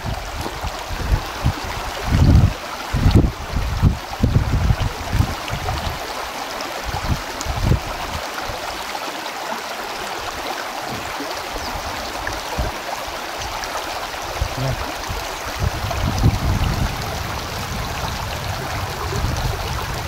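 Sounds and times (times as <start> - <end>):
wind thumps on microphone: 0.0 - 6.0, 6.9 - 8.2, 10.8 - 11.2, 12.5 - 12.8, 14.2 - 20.0
rushing stream: 0.0 - 20.0.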